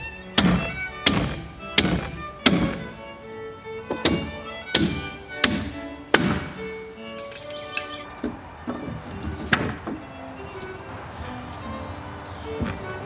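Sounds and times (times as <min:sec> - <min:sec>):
fiddle music: 0:00.0 - 0:13.0
hammer driving nails: 0:00.3 - 0:02.9, 0:03.9 - 0:06.6, 0:07.4 - 0:10.0.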